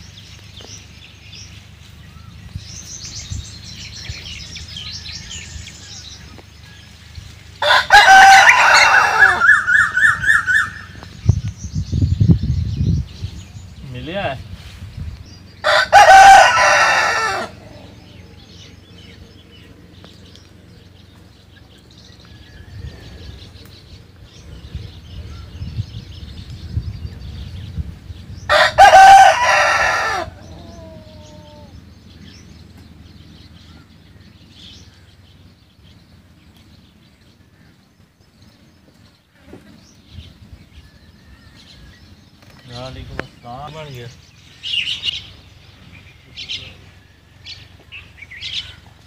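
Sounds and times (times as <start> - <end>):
small birds chirping: 0.0 - 49.0
rooster crowing: 7.6 - 11.0, 15.6 - 18.4, 28.5 - 31.8
faint hen clucking: 15.7 - 18.8, 28.5 - 31.8.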